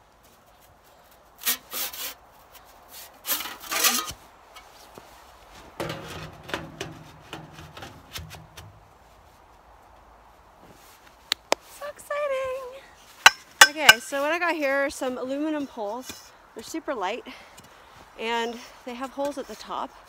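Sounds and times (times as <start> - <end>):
sheet metal pipes scraping: 3.2 - 4.8, 5.7 - 8.5.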